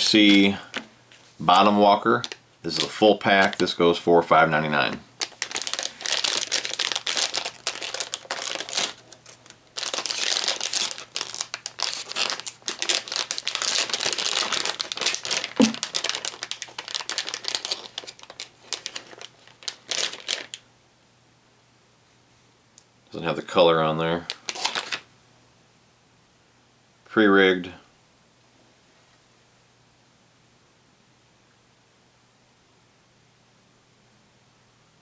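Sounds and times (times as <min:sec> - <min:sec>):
plastic packet crinkling: 0:01.5 - 0:03.7, 0:05.2 - 0:20.6, 0:24.2 - 0:25.1.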